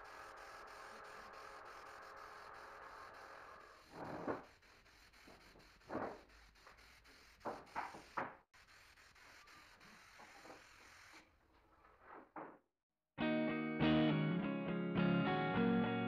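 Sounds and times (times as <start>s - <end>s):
air spray gun hissing: 0.0s - 11.2s.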